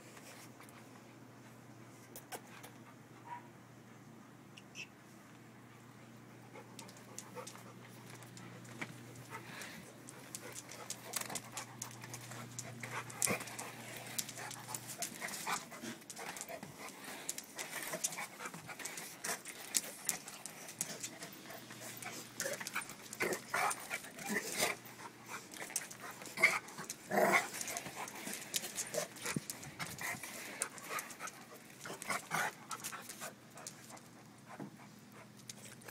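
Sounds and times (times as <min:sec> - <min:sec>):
dog panting: 0:06.3 - 0:35.9
claws clicking on concrete: 0:06.8 - 0:34.1.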